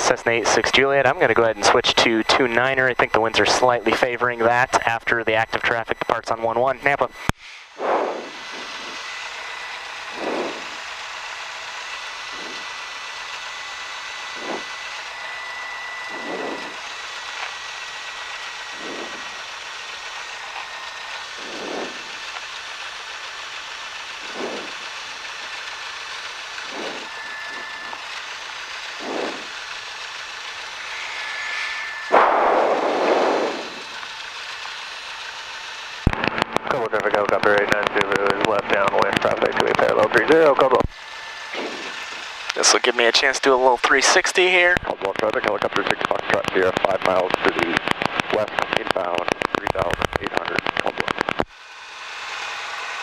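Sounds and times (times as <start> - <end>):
plane engine idling: 0.0 - 53.0
loud rumble: 7.8 - 9.0, 10.0 - 10.9, 16.1 - 16.9, 18.8 - 19.4, 21.4 - 22.2, 24.2 - 24.9, 26.6 - 35.2.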